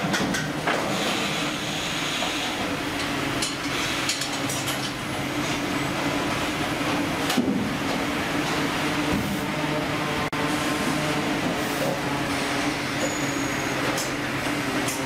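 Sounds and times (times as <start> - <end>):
clicks and clanks: 0.0 - 0.8, 3.0 - 5.0
machinery and conveyor belts running: 0.0 - 15.0.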